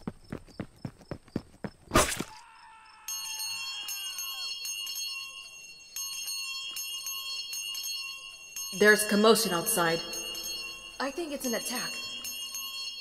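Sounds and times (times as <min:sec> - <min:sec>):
alarm bell ringing rapidly: 0:03.1 - 0:13.0.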